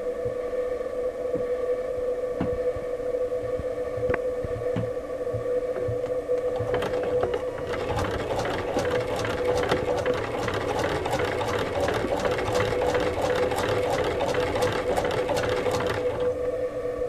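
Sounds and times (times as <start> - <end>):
sewing machine clattering: 6.6 - 16.3.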